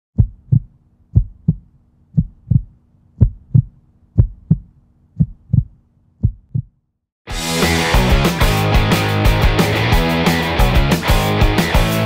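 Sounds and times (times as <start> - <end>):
heartbeat thumps: 0.2 - 6.8.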